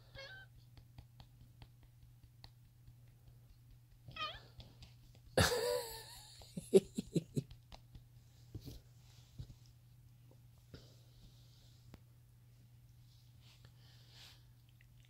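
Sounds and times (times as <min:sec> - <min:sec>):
cat meowing: 0:04.1 - 0:04.4.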